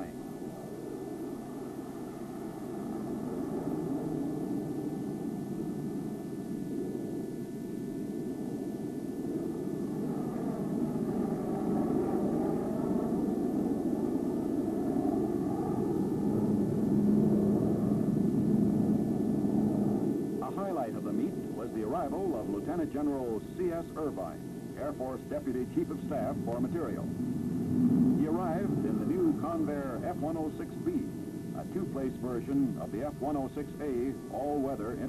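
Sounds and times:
faint wavering whine: 0:00.0 - 0:35.0
jet fighters flying overhead: 0:08.0 - 0:35.0.

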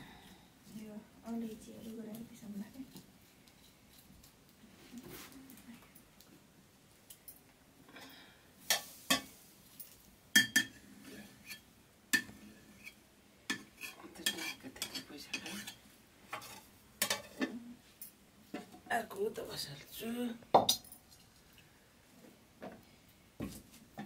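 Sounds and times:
stirring and scraping: 0:01.4 - 0:05.5, 0:10.4 - 0:17.7
metal ladle clinking on pots: 0:10.4 - 0:10.8, 0:13.5 - 0:15.8, 0:16.4 - 0:17.5.

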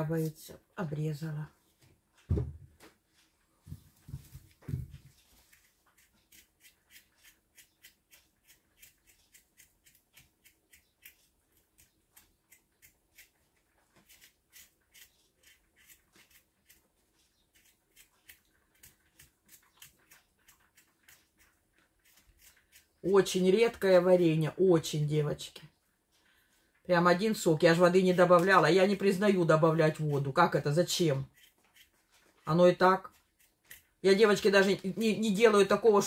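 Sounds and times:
soft knocks: 0:02.2 - 0:02.9
knife scraping potatoes: 0:05.1 - 0:24.3, 0:27.8 - 0:35.7.

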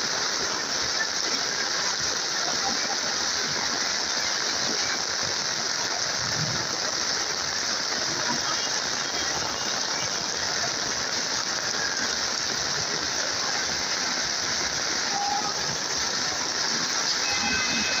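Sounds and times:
heavy rain on standing water: 0:00.0 - 0:18.0.

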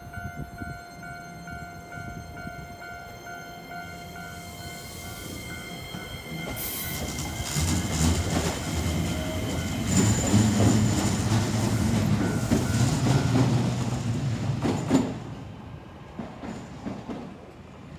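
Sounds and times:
train wheels clacking on rails: 0:04.9 - 0:15.5, 0:16.1 - 0:17.6.

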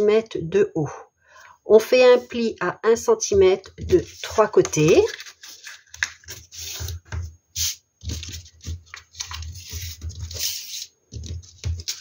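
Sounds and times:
cardstock folding and rustling: 0:03.7 - 0:12.0.

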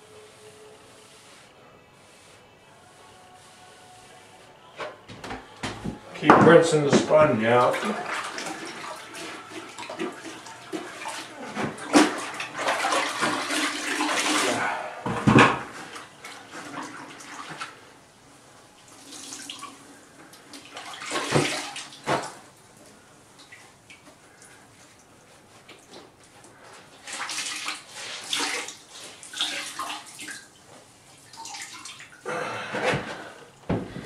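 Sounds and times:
sponge splashing in water: 0:27.0 - 0:30.6.

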